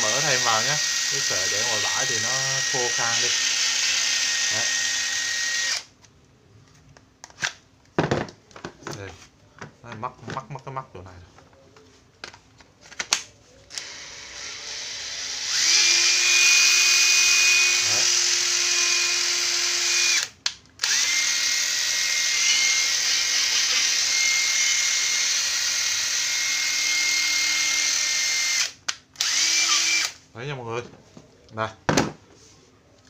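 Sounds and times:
cordless driver motor whining: 0.1s - 5.9s, 13.7s - 30.2s.

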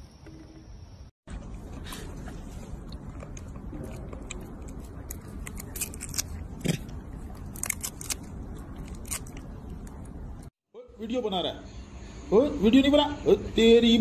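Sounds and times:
monkey chewing crunchy fruit: 1.3s - 10.1s.

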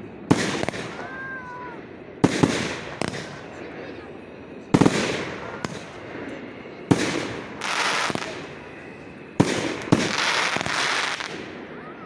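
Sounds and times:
firework bangs: 0.3s - 1.2s, 2.2s - 3.5s, 4.7s - 6.1s, 6.9s - 8.6s, 9.4s - 11.6s
firework hissing: 6.9s - 11.8s.

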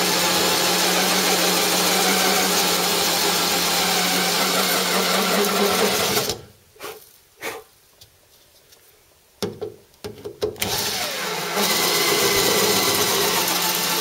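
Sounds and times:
electric drill cutting sheet steel: 0.0s - 6.4s, 10.6s - 14.0s.

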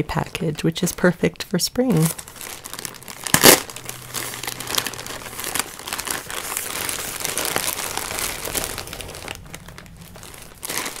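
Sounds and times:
packaging crinkling and rustling: 1.9s - 11.0s.

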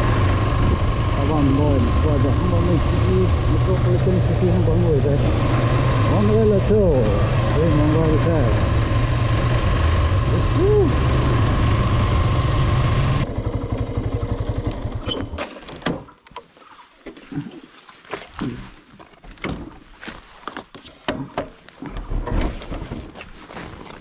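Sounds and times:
motorcycle engine idling: 0.0s - 15.2s
motorcycle riding: 0.0s - 16.1s.

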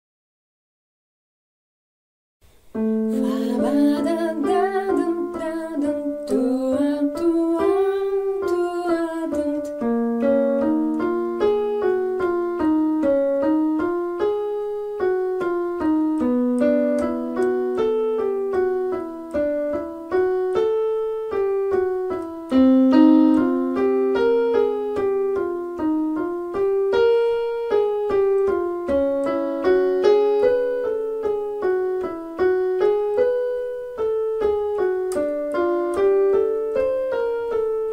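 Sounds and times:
piano accompaniment: 2.4s - 37.9s
person singing gliding notes: 3.0s - 9.9s.

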